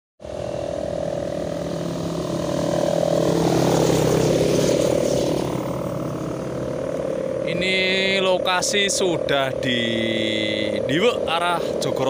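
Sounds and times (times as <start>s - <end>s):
rushing air: 0.2s - 7.5s
kite hummers droning: 0.2s - 12.0s
motorcycle passing by: 0.2s - 12.0s.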